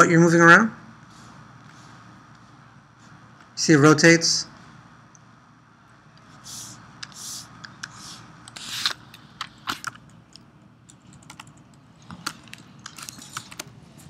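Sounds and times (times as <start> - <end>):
computer keyboard typing: 9.4 - 13.8.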